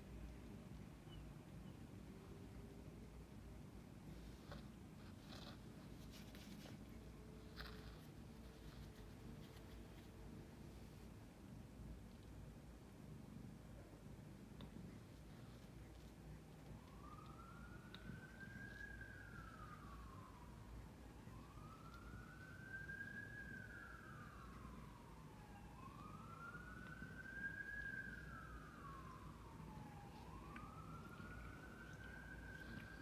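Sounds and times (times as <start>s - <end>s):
faint siren wailing: 0.0s - 33.0s.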